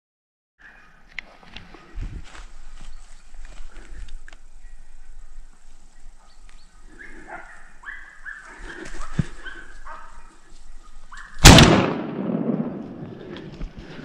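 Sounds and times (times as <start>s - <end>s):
dogs baying in the distance: 6.1s - 11.4s
gunshot echoing: 11.4s - 13.3s.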